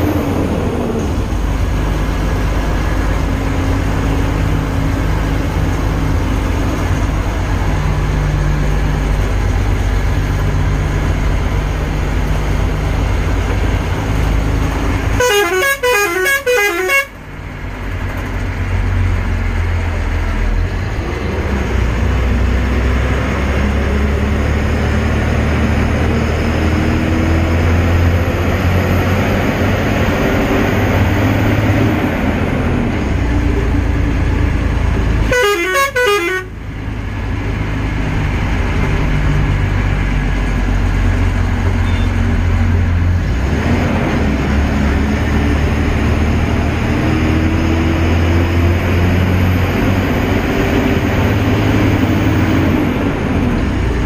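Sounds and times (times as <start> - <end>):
vehicle engine and road rumble: 0.0 - 54.0
vehicle horn: 15.2 - 17.2, 35.2 - 36.6, 41.8 - 42.2.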